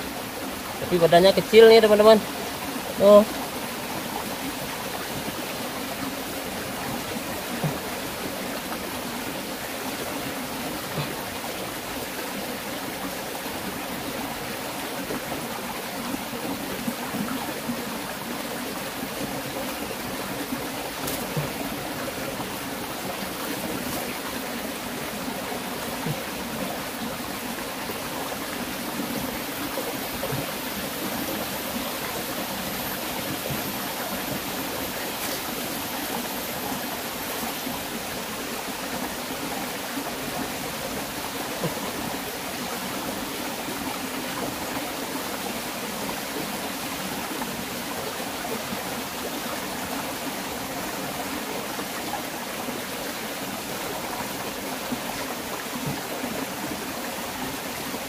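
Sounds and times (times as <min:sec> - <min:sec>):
stream flowing over stones: 0:00.0 - 0:58.0.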